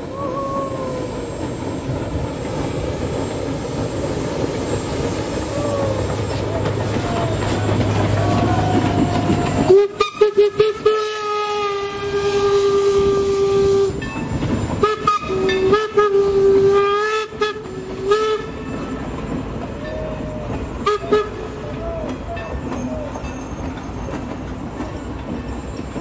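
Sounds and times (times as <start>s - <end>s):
passing train noise: 0.0s - 26.0s
steam locomotive whistle: 7.2s - 19.0s, 19.9s - 23.1s.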